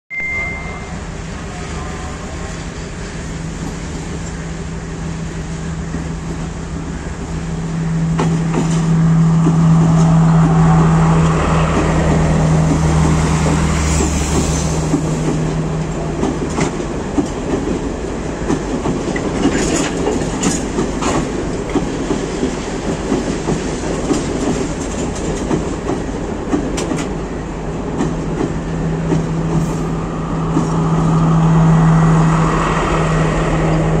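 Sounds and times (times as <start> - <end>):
diesel engine humming: 4.6 - 18.5
train wheels clattering over joints: 8.2 - 27.2.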